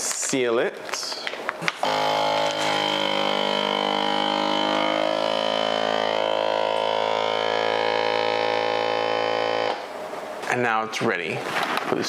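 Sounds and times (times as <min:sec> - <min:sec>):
vacuum sealer pump humming: 0:01.6 - 0:10.1.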